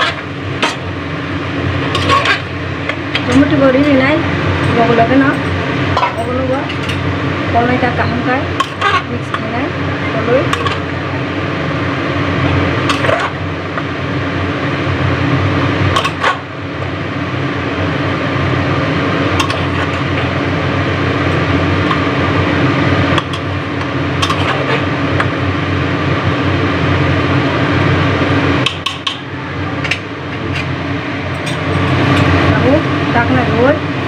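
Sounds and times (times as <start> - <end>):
steady hum: 0.0 - 34.0
ladle stirring food in a pot: 1.9 - 2.5.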